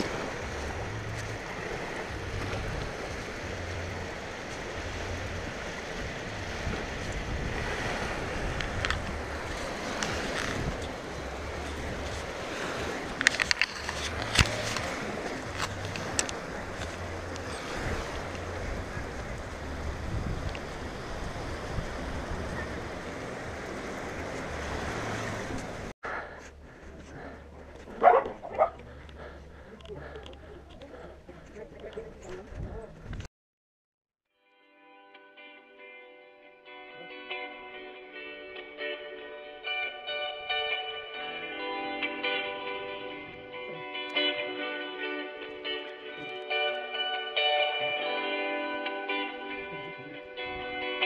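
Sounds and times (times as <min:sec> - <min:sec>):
waves washing onto sandy shore: 0:00.0 - 0:25.9
wind buffeting microphone: 0:00.0 - 0:33.3
quiet outdoor background: 0:08.5 - 0:33.3.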